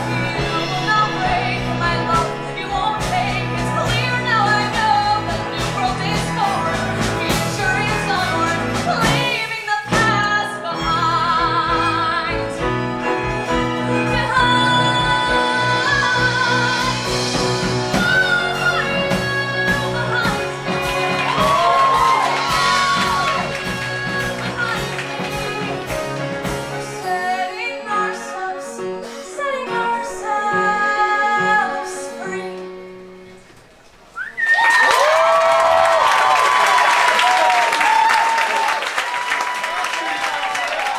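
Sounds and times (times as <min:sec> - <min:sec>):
woman singing into a microphone: 0:00.0 - 0:26.1, 0:26.8 - 0:32.9
live band playing: 0:00.0 - 0:33.6.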